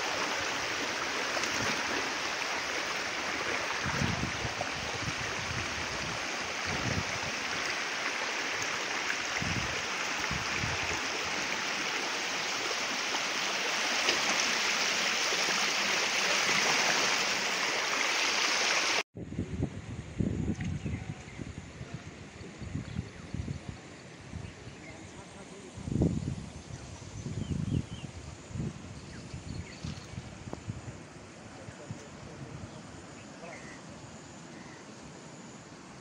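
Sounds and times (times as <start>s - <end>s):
floodwater rushing: 0.0s - 19.0s
wind buffeting microphone: 3.7s - 7.6s, 9.3s - 11.4s, 25.7s - 32.9s.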